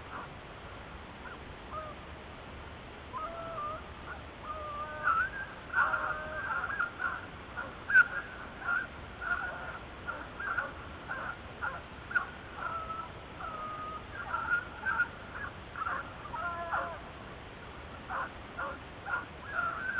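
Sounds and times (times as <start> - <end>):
dogs baying: 13.6 - 17.0, 18.1 - 19.9.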